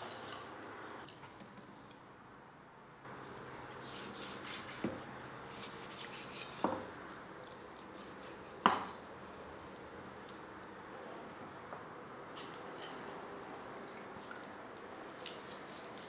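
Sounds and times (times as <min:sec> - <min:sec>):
knife chopping meat on wooden board: 0:04.2 - 0:06.9, 0:08.0 - 0:09.0.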